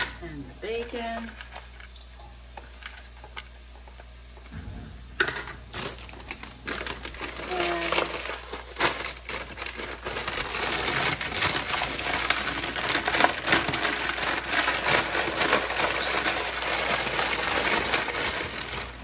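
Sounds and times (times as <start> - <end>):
chips clattering into steel bowl: 5.2 - 19.0
bag crinkling: 5.6 - 19.0.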